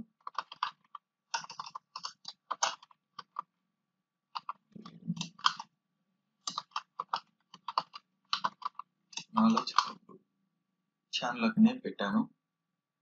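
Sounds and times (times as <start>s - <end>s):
typing on keyboard: 0.0s - 3.4s, 4.4s - 5.7s, 6.5s - 10.0s.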